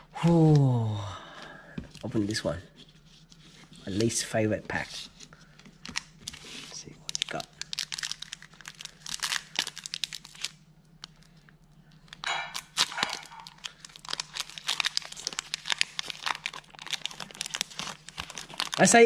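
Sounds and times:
foil wrapper crinkling: 0:05.6 - 0:19.0.

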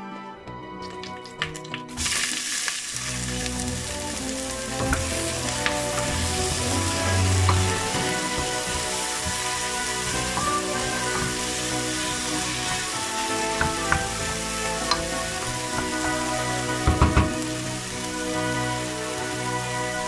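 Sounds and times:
background music: 0:00.0 - 0:20.0
onion sizzling in hot oil: 0:01.3 - 0:20.0
wooden spoon stirring: 0:03.5 - 0:17.6.

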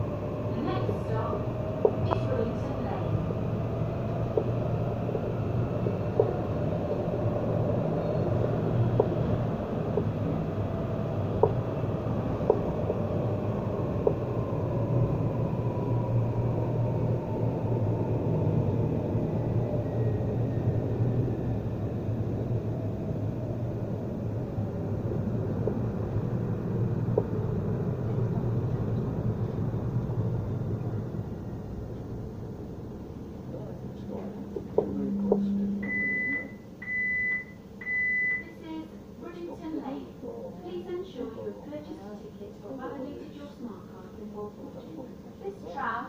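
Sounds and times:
tram wheels rumbling on rail: 0:00.0 - 0:36.0
tram motor whine: 0:00.0 - 0:39.4.

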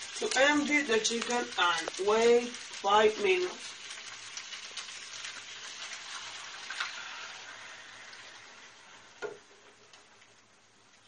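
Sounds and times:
sauce sizzling in a frying pan: 0:00.0 - 0:11.0.

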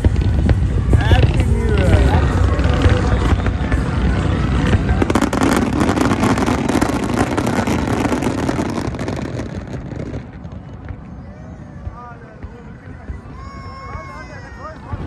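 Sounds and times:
fireworks crackling: 0:00.0 - 0:15.0
low rumble of firework bursts: 0:00.0 - 0:15.0.

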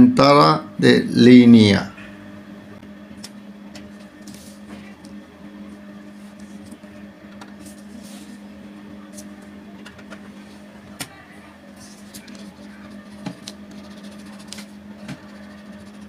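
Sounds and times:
low electrical hum: 0:00.0 - 0:16.0
marker pen scratching on paper: 0:11.8 - 0:16.0.

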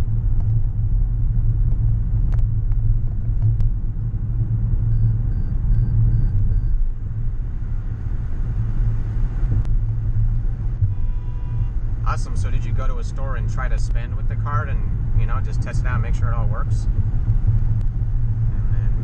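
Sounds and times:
car interior road and engine rumble: 0:00.0 - 0:19.0
tyres on wet road: 0:06.9 - 0:19.0.

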